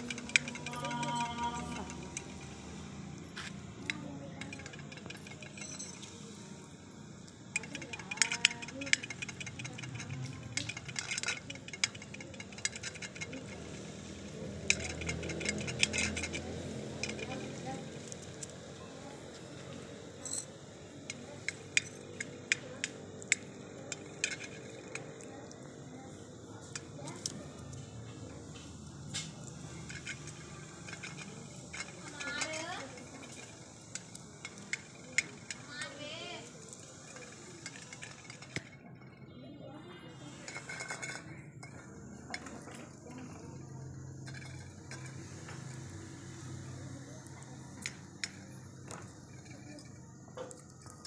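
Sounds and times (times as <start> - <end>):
beak clinking on metal bowl: 7.5 - 18.5, 29.4 - 38.7.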